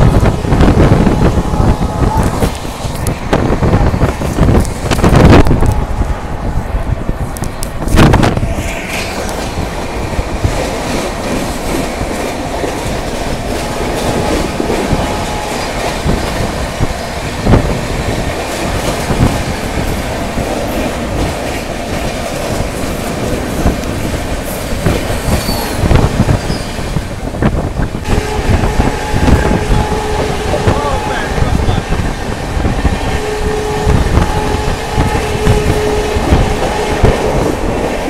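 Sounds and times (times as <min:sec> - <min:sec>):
rushing air: 0:00.0 - 0:38.0
train wheels rumbling on rails: 0:00.0 - 0:38.0
clacks at rail joints: 0:10.4 - 0:26.8
high wheel squeals: 0:25.3 - 0:25.8, 0:26.4 - 0:26.8.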